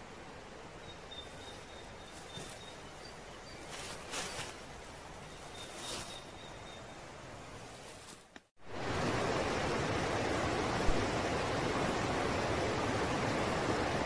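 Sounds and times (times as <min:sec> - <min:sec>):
faint forest ambience: 0:00.0 - 0:14.0
stream rushing over rocks: 0:08.6 - 0:14.0.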